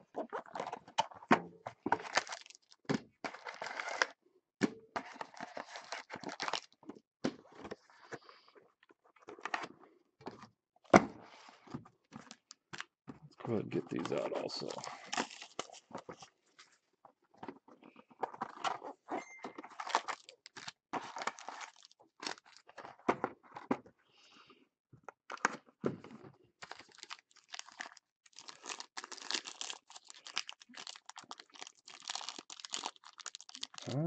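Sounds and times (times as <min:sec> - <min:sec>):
cardboard boxes crinkling and tearing: 0:00.1 - 0:01.2, 0:01.8 - 0:04.2, 0:05.0 - 0:06.8, 0:13.9 - 0:16.3, 0:19.6 - 0:23.1, 0:26.6 - 0:34.0.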